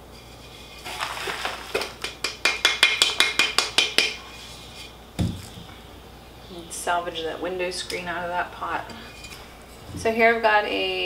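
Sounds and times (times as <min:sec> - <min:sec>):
dull thump: 0:05.2 - 0:05.6.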